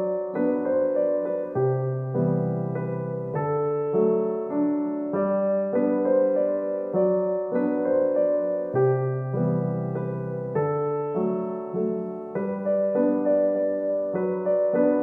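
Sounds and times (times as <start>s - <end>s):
piano playing repeating pattern: 0.0s - 15.0s.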